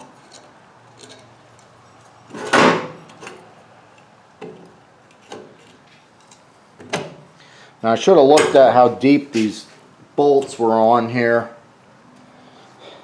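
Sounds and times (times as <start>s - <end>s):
metal clunk: 2.3s - 3.4s, 8.3s - 8.7s.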